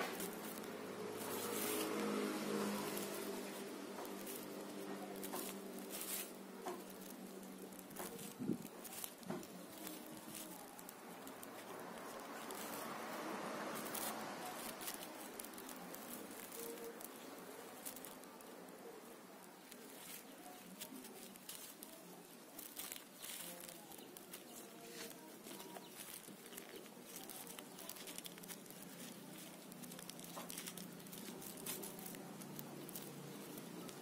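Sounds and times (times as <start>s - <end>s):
leaves and twigs rustling: 0.0s - 34.0s.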